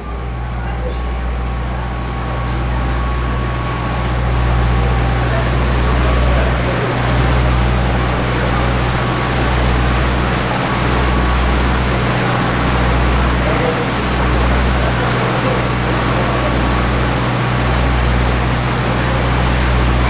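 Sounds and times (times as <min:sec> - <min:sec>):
boat motor humming: 0:00.0 - 0:20.0
water wash: 0:00.0 - 0:20.0.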